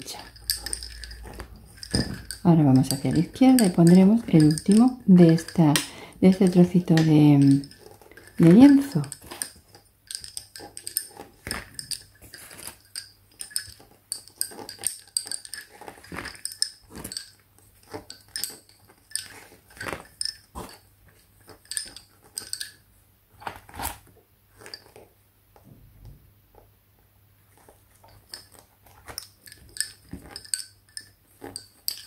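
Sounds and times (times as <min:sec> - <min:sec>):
lace bobbins clicking: 0:00.0 - 0:25.7, 0:27.4 - 0:32.0.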